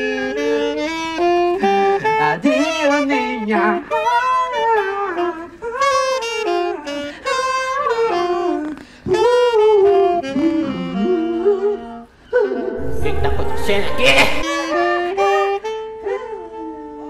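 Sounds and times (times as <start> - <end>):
saxophone melody: 3.8 - 12.0.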